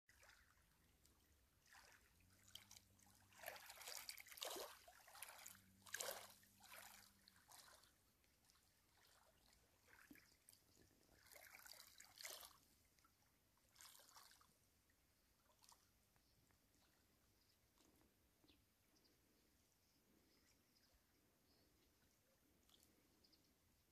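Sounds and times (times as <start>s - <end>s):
small waves lapping on pebbles: 0.1s - 14.6s.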